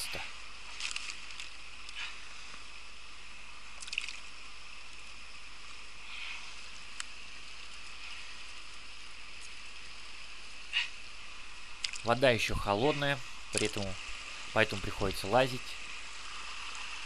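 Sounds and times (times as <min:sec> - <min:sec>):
faint clicks and rustles: 0:00.2 - 0:12.2
river babbling over stones: 0:06.6 - 0:17.0.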